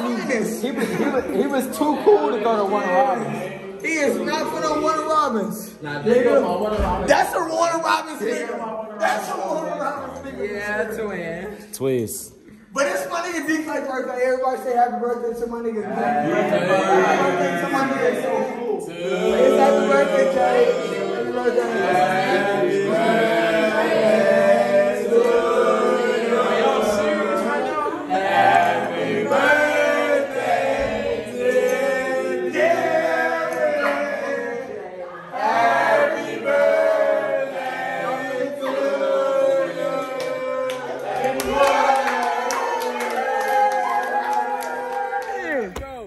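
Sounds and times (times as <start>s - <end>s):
group of people singing: 15.7s - 45.7s.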